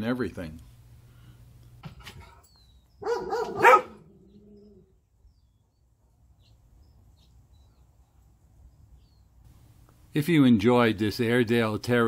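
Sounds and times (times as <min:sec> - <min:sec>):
faint bird chirps: 0:02.4 - 0:03.2, 0:04.2 - 0:09.4.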